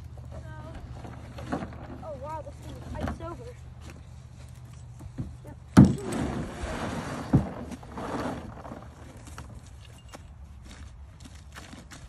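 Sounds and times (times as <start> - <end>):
hull scraping over ground: 0.0 - 4.2, 5.0 - 9.8.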